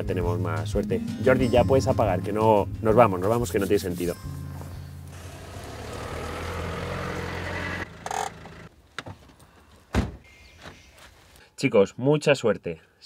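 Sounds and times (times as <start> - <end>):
van engine running: 5.0 - 8.7.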